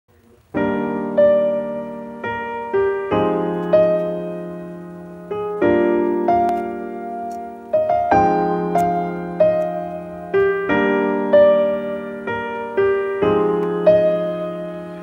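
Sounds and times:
slow gentle piano music: 0.4 - 15.0.

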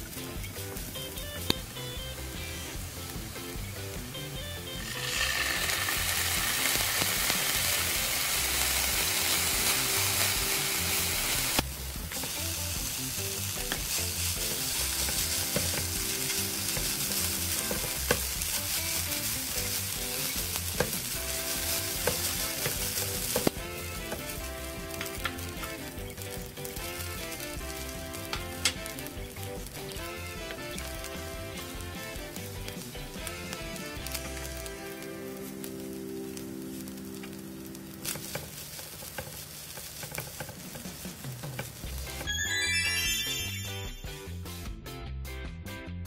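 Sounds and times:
sauce sizzling in frying pan: 0.0 - 44.4
spatula tapping on pan: 15.0 - 18.3, 20.7 - 21.0, 38.1 - 41.8.

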